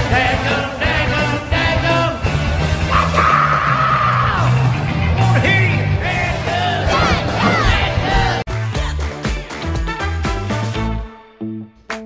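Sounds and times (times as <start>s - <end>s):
heavy metal music: 0.0s - 12.0s
person shouting vocals: 6.7s - 8.4s.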